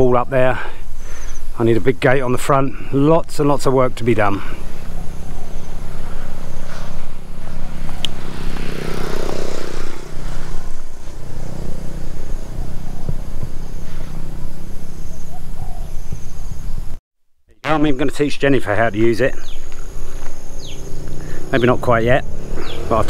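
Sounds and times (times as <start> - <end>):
lawn mower engine running: 4.6 - 15.1.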